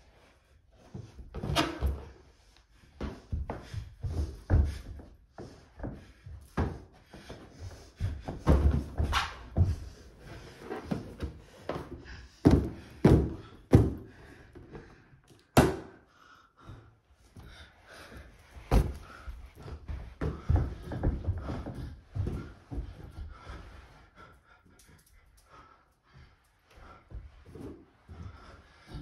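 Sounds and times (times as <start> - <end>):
thuds of feet on carpet: 2.9 - 14.2, 18.2 - 23.7.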